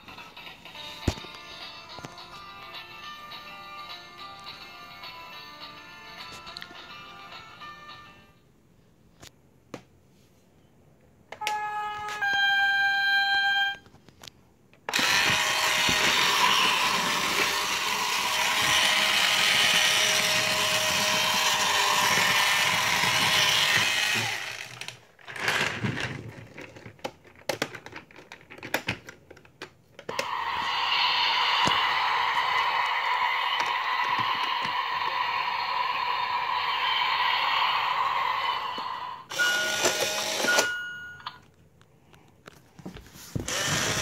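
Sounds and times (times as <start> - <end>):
toy electric motor running: 14.9 - 25.8, 30.2 - 40.7, 43.5 - 44.0.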